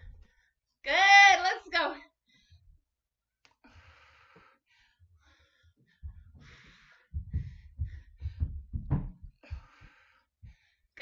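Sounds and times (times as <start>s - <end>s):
woman breathing heavily: 3.5s - 11.0s
low irregular thumps: 5.9s - 10.8s.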